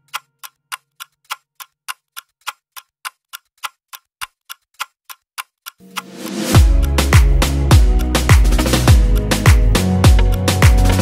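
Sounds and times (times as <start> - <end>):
clock ticking: 0.0 - 11.0
background music: 5.8 - 11.0.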